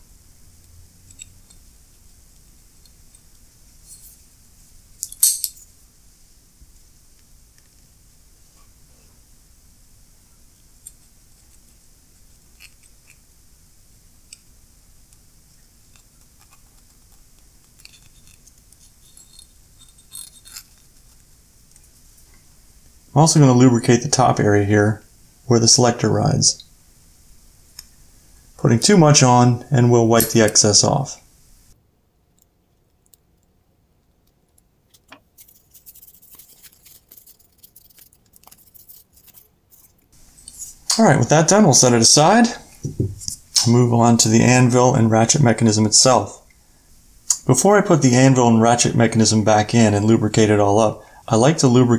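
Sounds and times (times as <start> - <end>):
toothpick scraping metal: 15.9 - 21.2, 35.4 - 40.8.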